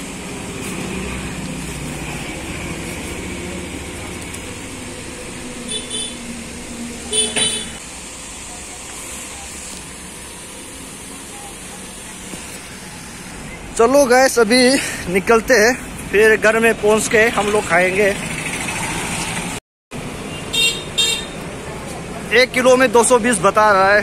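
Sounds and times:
vehicle engine running: 0.0 - 13.8, 14.7 - 19.6
street traffic: 0.0 - 24.0
short horn beeps: 5.7 - 6.2, 7.1 - 7.8.

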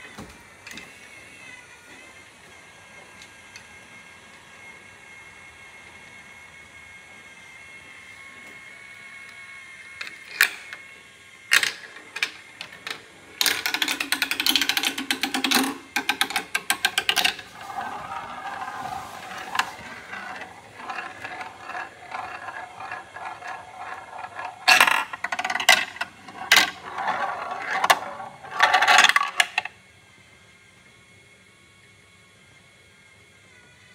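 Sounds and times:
marble rattling along plastic track: 11.6 - 29.7
marble whirring around funnel: 12.2 - 29.7.

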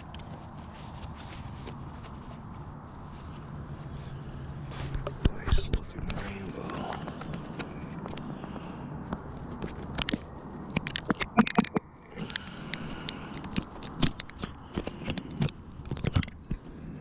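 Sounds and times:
steady low rush: 0.0 - 11.1.

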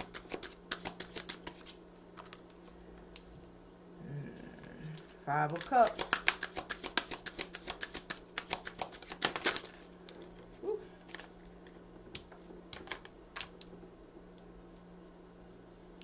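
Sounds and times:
cards being shuffled: 0.0 - 3.3, 4.9 - 13.8.

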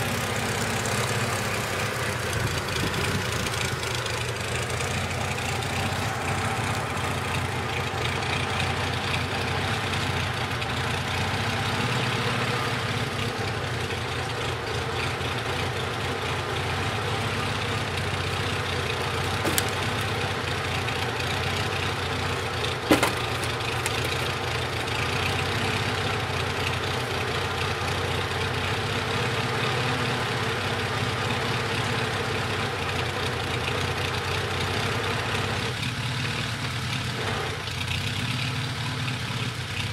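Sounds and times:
tractor engine idling: 0.0 - 39.9
sharp knocks: 19.3 - 20.1, 22.9 - 24.2.

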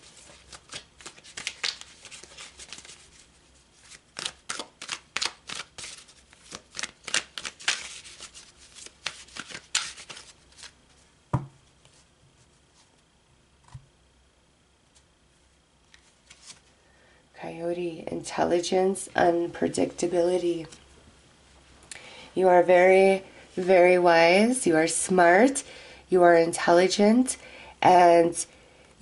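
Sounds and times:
cards being shuffled: 0.0 - 11.0, 15.9 - 16.7.

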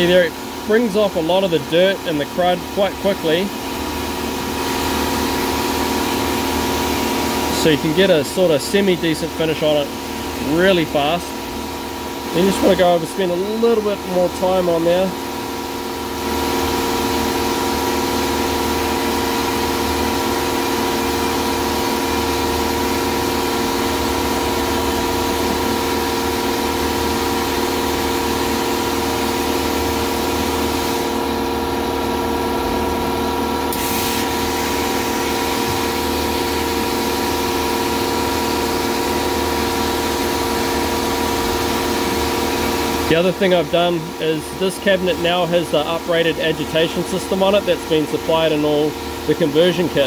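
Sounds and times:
machine hum: 0.0 - 50.0
blast jet hissing: 33.7 - 37.0.

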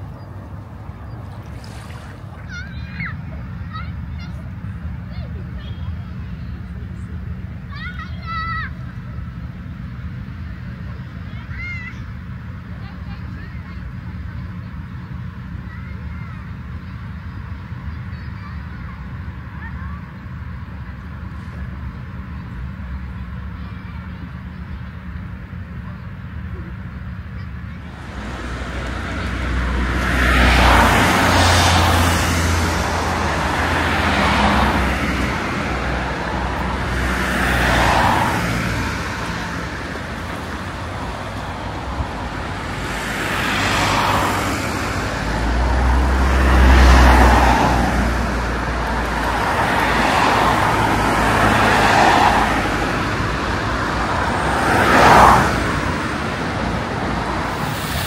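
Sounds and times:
cars passing: 0.0 - 58.0
low engine rumble: 0.0 - 58.0.

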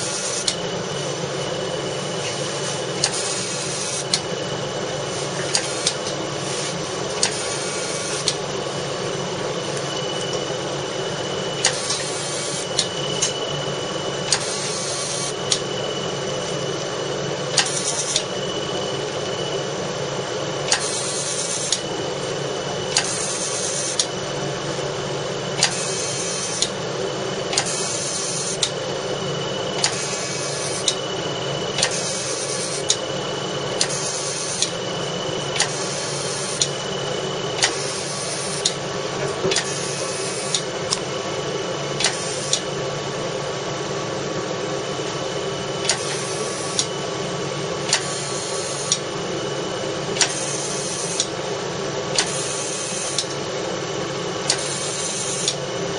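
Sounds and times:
laser machine humming: 0.0 - 55.9
sharp machine clicks: 5.3 - 8.4, 11.6 - 13.4, 14.3 - 15.7, 17.5 - 18.3, 20.6 - 21.9, 22.9 - 24.1, 25.6 - 26.8, 27.5 - 28.8, 29.8 - 31.0, 31.7 - 33.0, 33.8 - 34.8, 35.6 - 36.8, 37.6 - 38.8, 39.5 - 41.1, 42.0 - 42.7, 45.8 - 47.0, 47.8 - 49.1, 50.2 - 51.3, 52.2 - 53.4, 54.4 - 55.6.

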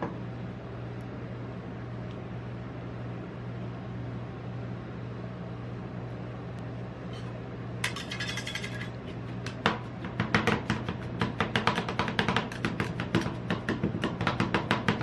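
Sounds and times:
refrigeration unit humming: 0.0 - 15.0
metal spatulas scraping: 7.1 - 9.3.

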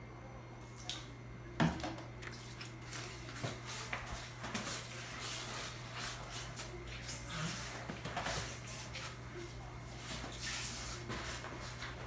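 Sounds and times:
mop swishing on wet tile floor: 2.5 - 12.0.

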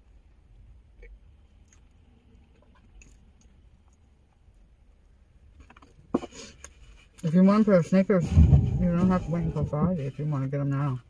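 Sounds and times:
faint low rumble: 8.2 - 10.3.

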